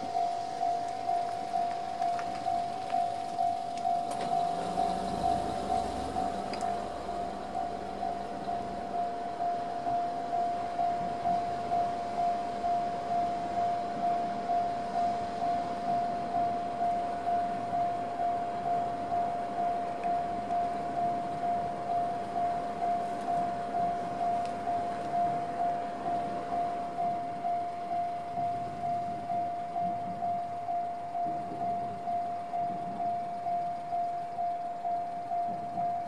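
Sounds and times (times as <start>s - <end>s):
level crossing warning bell dinging: 0.0s - 36.0s.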